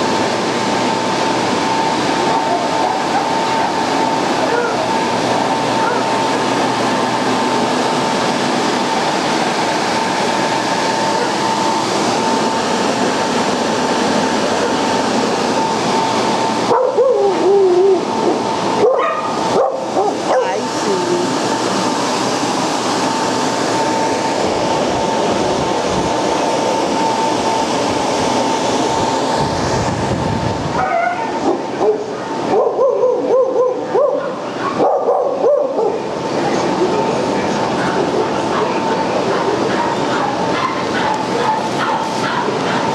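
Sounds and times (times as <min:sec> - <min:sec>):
dogs whining and yipping: 0:16.7 - 0:18.1, 0:30.8 - 0:31.3.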